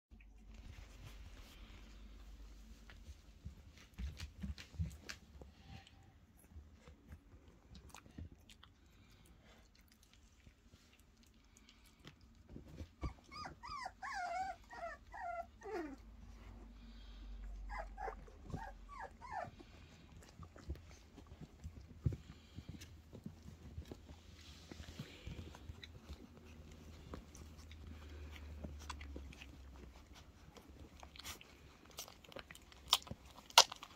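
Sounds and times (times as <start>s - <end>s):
rustles and knocks of puppies moving: 0.1s - 33.9s
puppies yelping: 13.0s - 16.0s
puppies whimpering and squealing: 13.0s - 16.6s, 17.4s - 21.2s.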